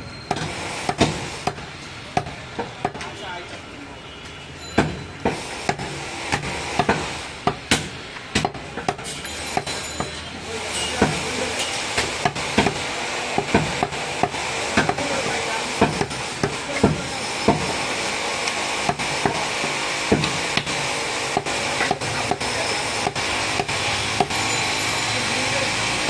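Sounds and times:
cleaver chopping meat on wood: 0.3 - 3.1, 4.8 - 10.2, 11.0 - 24.5.

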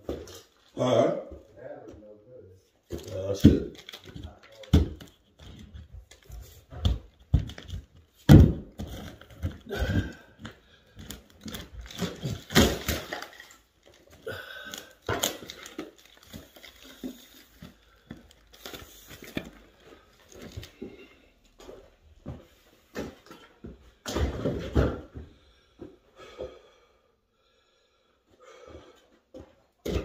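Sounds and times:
wood breaking and scraping: 3.0 - 18.6
wood knocks and thuds: 6.7 - 10.2.

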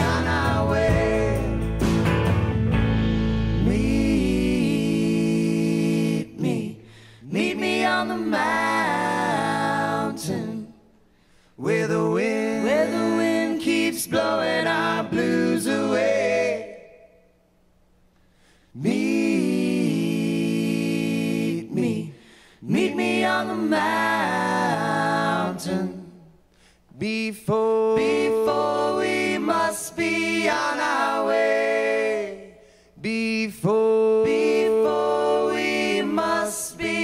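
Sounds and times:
unaccompanied voices singing: 0.0 - 2.0, 3.6 - 10.8, 11.6 - 17.2, 18.8 - 26.3, 27.0 - 37.0.

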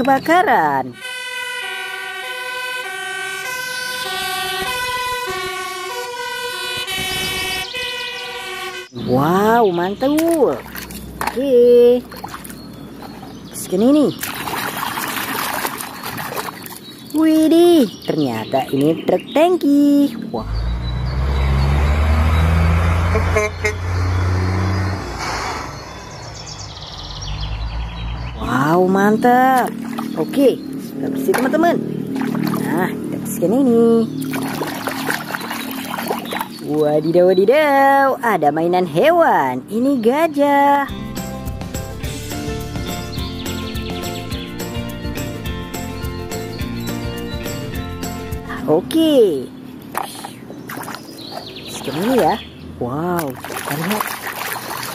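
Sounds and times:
two-tone siren wail: 0.8 - 9.0, 20.9 - 25.2
truck horn toot: 0.9 - 9.0, 21.5 - 25.2
diesel truck driving past: 20.2 - 36.8.

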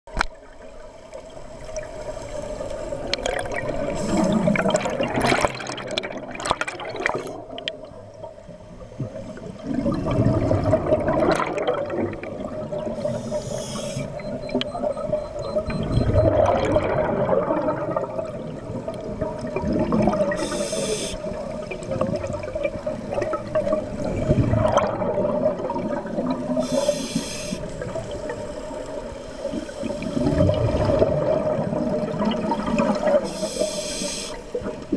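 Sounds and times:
exhaled bubbles rushing underwater: 0.4 - 33.8, 34.4 - 34.9
regulator inhalation hiss: 3.9 - 4.4, 13.0 - 14.2, 20.4 - 21.3, 26.6 - 27.8, 33.2 - 34.6.

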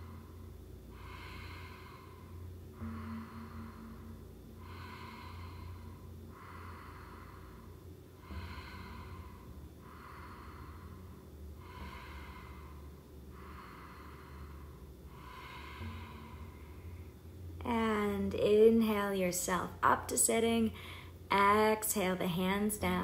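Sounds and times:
person breathing strongly: 0.0 - 17.4, 20.8 - 21.3.

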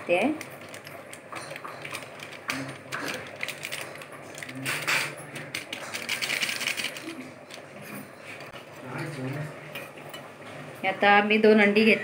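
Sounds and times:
plastic packet crinkling: 0.4 - 7.8.

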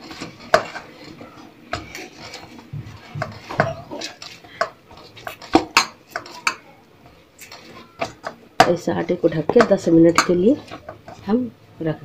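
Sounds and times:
bowl and utensils clinking: 7.4 - 11.3.

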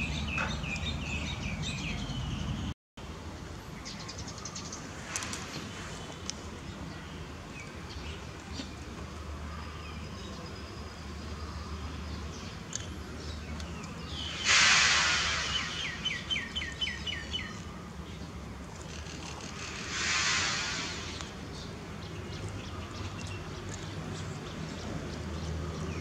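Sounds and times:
bird chirping: 0.0 - 2.7, 9.5 - 18.3
steady outdoor hum: 0.0 - 26.0.

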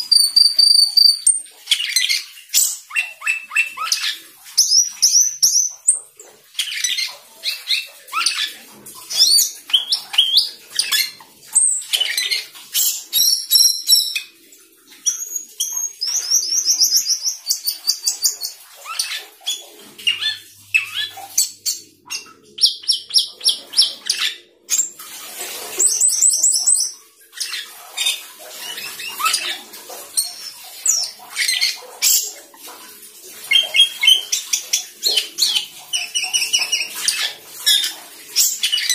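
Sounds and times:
starling singing chirps and whistles: 0.0 - 5.9, 9.1 - 14.3, 15.1 - 19.2, 25.8 - 27.6.

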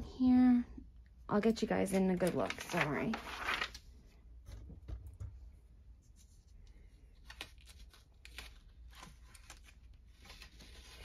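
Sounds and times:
paper rustling: 1.9 - 3.9, 6.1 - 11.0.

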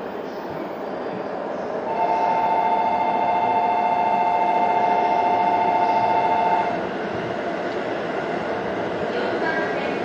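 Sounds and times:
train rumbling on rails: 0.0 - 10.0
two-tone train horn: 1.9 - 6.8.

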